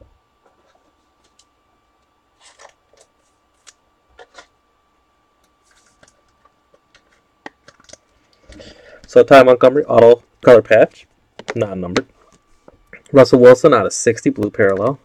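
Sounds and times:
trading cards rustling: 2.4s - 4.5s.

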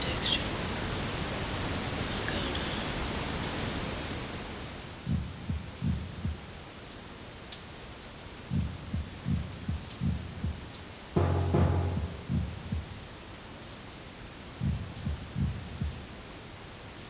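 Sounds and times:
heartbeat thumps: 5.0s - 6.5s, 8.5s - 13.0s, 14.6s - 16.0s.

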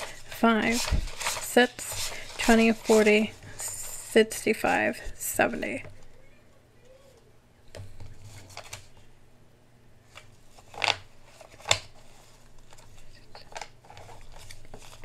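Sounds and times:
banknotes rustling: 0.0s - 5.8s, 10.1s - 15.0s.

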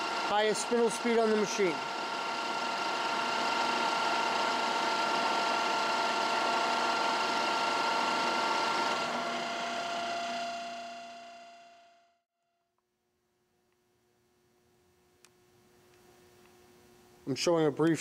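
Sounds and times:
drill running with whine: 0.0s - 12.0s.

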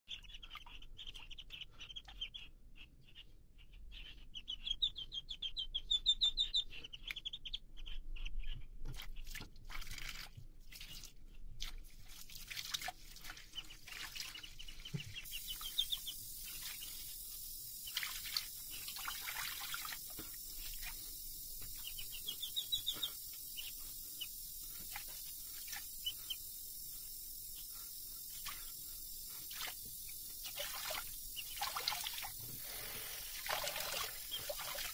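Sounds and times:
duckling peeping: 0.1s - 9.3s, 13.5s - 26.5s, 29.6s - 31.9s.

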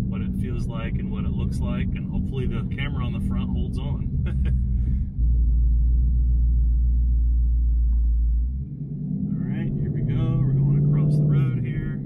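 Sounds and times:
car engine drone from inside cabin: 0.0s - 12.0s.

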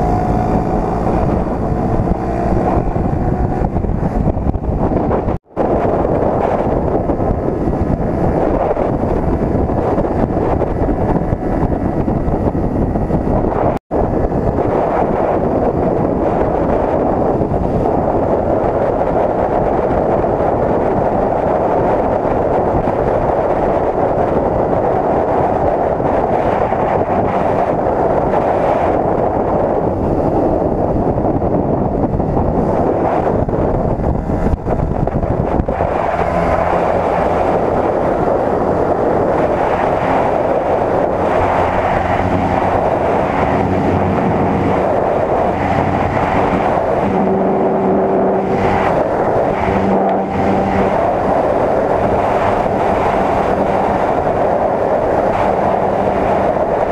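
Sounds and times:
motorcycle engine running: 0.0s - 19.6s, 25.8s - 56.9s
wind rushing over microphone: 0.0s - 56.9s.

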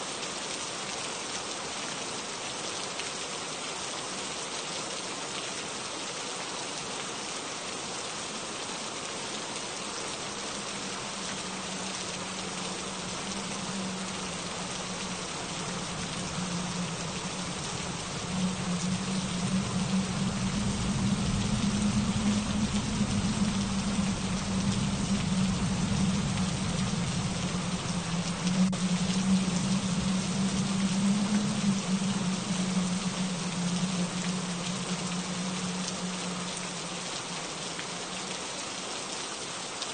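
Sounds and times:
steady rain falling: 0.0s - 39.9s
low drone: 10.0s - 38.4s.

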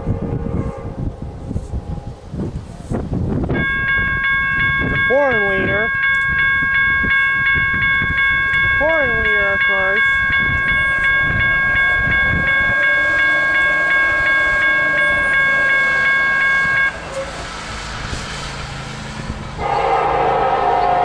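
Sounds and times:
train rumble: 0.0s - 21.0s
crossing bell ringing: 3.4s - 17.4s, 19.6s - 21.0s.

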